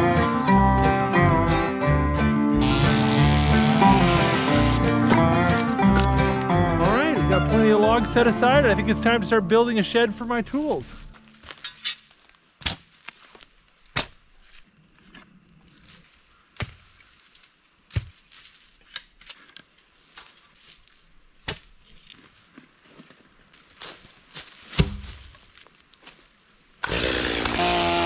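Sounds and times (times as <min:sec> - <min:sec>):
digging tool chopping into soil: 0:13.9 - 0:14.2, 0:21.4 - 0:21.7, 0:24.7 - 0:25.3.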